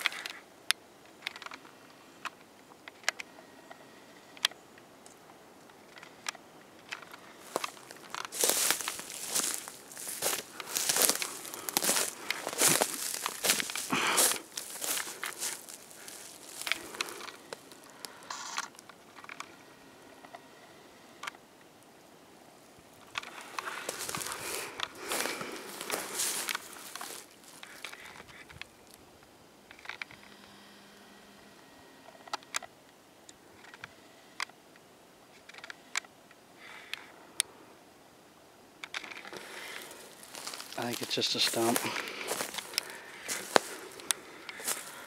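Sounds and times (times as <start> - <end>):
rustling: 5.9 - 19.6, 22.6 - 29.0, 38.8 - 45.0
footsteps on the ground: 7.1 - 18.2, 23.0 - 29.0, 39.3 - 45.0
sharp clicks and ticks: 16.6 - 19.6.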